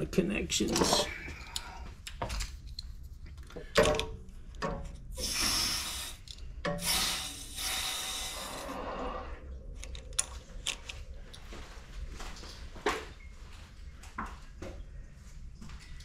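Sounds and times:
relief valve hissing: 0:05.2 - 0:09.4.

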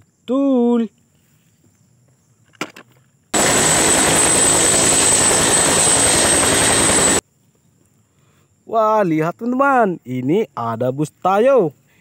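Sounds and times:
helicopter rotor noise: 0:03.4 - 0:07.2
high turbine whine: 0:03.4 - 0:07.2.

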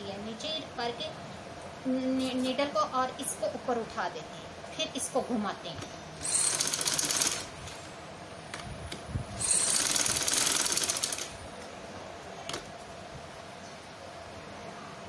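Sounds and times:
sewing machine stitching: 0:06.2 - 0:07.5, 0:09.4 - 0:11.3.

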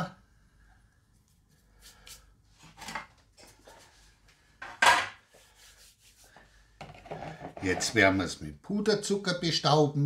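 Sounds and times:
hands brushing together: 0:01.2 - 0:02.4, 0:05.3 - 0:06.4.

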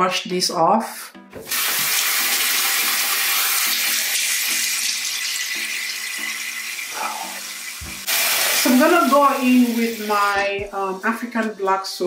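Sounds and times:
water splashing on face: 0:01.4 - 0:04.2
tap running: 0:07.8 - 0:08.6.

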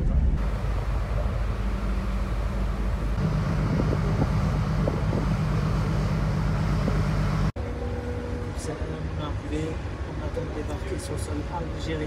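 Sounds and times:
wind on microphone: 0:00.0 - 0:07.2
ship engines droning: 0:00.2 - 0:12.0.

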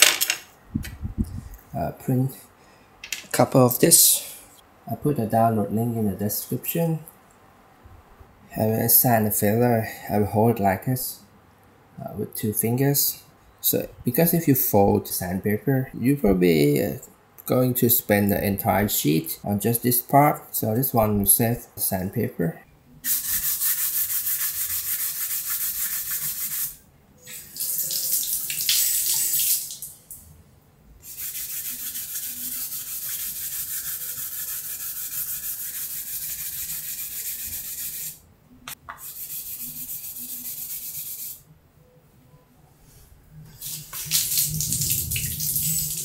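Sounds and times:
wet sanding: 0:23.1 - 0:26.8, 0:31.0 - 0:38.2, 0:39.0 - 0:41.4
water running from a tap: 0:27.3 - 0:29.9, 0:43.6 - 0:46.0.

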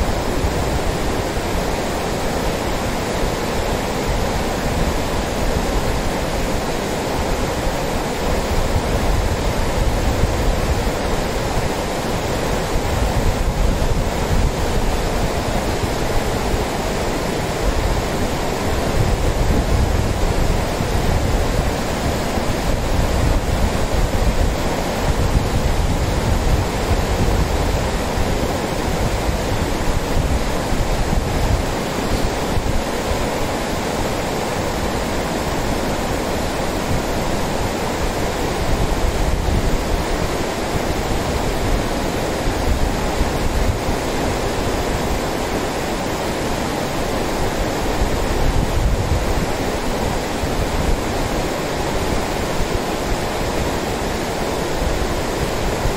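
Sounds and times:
river rushing over stones: 0:00.0 - 0:55.9.

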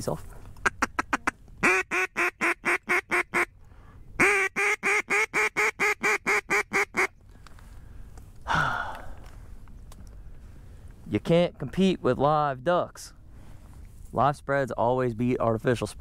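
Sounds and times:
duck call quacks: 0:00.6 - 0:03.5, 0:04.2 - 0:07.1.

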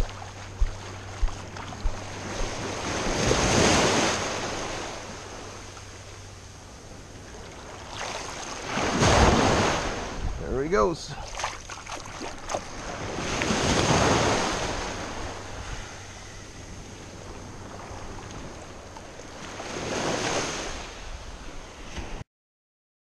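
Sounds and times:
small surf waves washing in: 0:00.0 - 0:22.2
wind noise on microphone: 0:08.7 - 0:10.5.

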